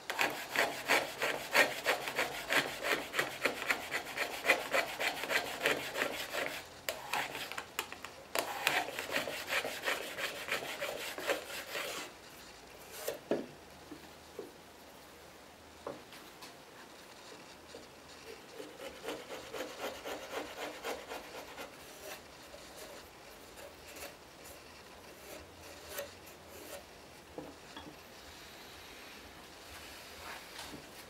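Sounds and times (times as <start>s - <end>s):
chisel scraping wood: 0.1s - 7.6s, 8.4s - 12.2s, 12.8s - 13.2s, 18.2s - 26.9s.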